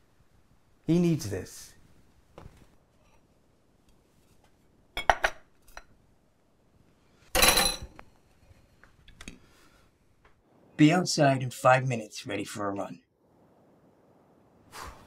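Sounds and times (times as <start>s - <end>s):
dishes and cutlery clinking: 5.0s - 5.9s, 7.3s - 8.1s.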